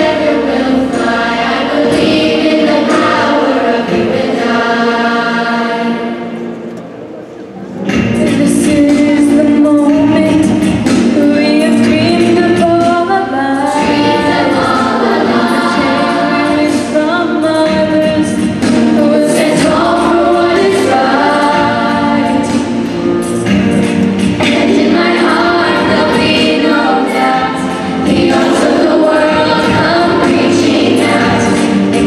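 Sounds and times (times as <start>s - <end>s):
choir singing: 0.0s - 6.6s, 11.6s - 22.9s, 24.4s - 32.0s
woman singing into microphone: 8.1s - 22.6s.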